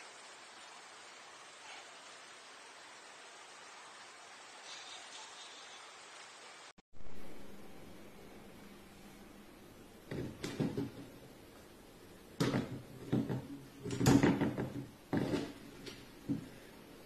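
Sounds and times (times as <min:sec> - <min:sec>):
frying pan scraping and rattling: 0:12.5 - 0:16.0.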